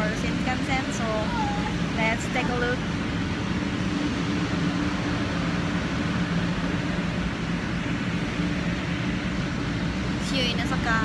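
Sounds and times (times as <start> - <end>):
steady mechanical hum: 0.0 - 11.0.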